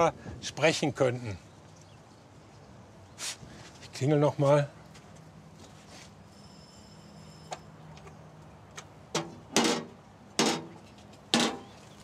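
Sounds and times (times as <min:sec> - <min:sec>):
faint doorbell ringing: 0:06.3 - 0:07.7.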